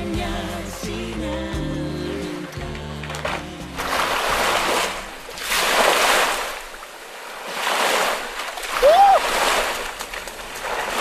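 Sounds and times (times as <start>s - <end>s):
sea waves washing onto shore: 3.0s - 11.0s.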